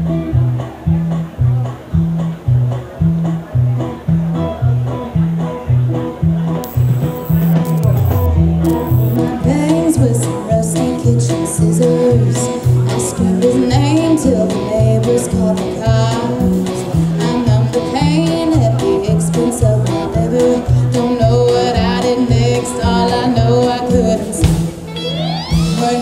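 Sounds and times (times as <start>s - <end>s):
drums: 0.0s - 26.0s
electric guitars: 6.0s - 26.0s
bass line: 6.6s - 9.8s
woman singing: 9.2s - 24.4s, 25.7s - 26.0s.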